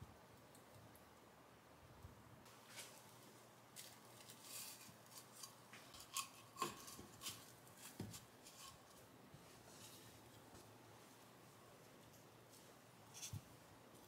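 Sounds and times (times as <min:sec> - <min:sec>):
small objects clicking and scraping: 0:03.7 - 0:09.0.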